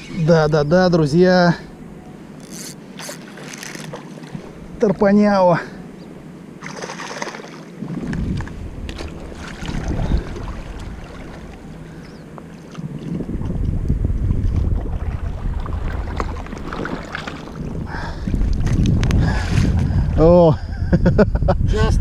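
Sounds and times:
water sloshing and splashing: 0:02.4 - 0:05.0, 0:06.6 - 0:20.1
wind rumbling on microphone: 0:07.7 - 0:22.0.

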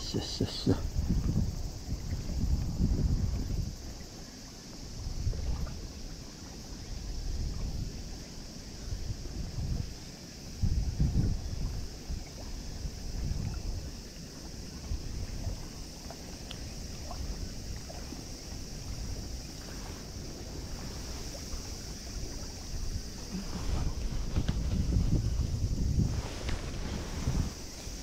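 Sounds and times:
faint high hiss: 0:00.0 - 0:28.0
wind noise on microphone: 0:00.0 - 0:28.0.

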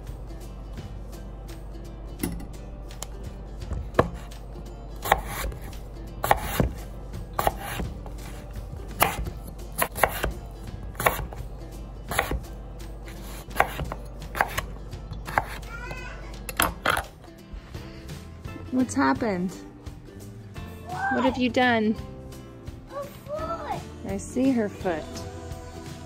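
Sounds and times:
knife chopping on cutting board: 0:03.7 - 0:04.4, 0:05.0 - 0:11.4, 0:12.1 - 0:15.7.

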